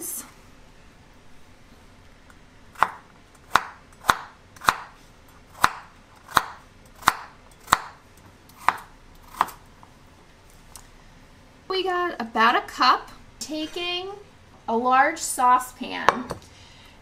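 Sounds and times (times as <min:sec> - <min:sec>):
knife chopping on cutting board: 0:02.7 - 0:05.0, 0:05.6 - 0:09.6.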